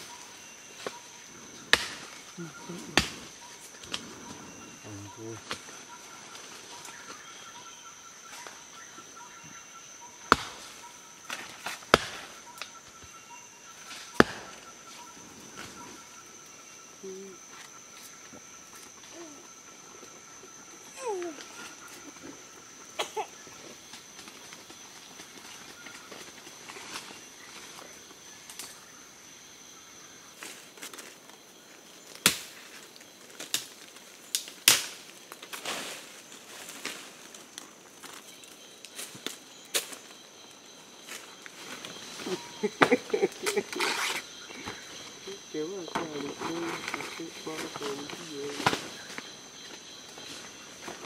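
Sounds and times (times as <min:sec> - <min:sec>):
rainforest insects chorus: 0:00.0 - 0:51.0
blade chopping wood: 0:01.7 - 0:02.1, 0:10.3 - 0:10.6, 0:11.3 - 0:12.3, 0:14.2 - 0:14.6.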